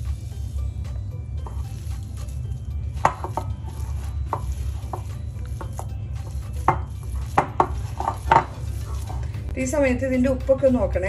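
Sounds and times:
hand squeezing onions in bowl: 1.4s - 9.3s.

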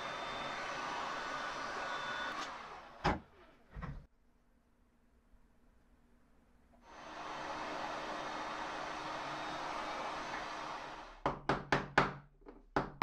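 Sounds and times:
heat gun blowing: 0.0s - 3.0s, 6.8s - 11.2s.

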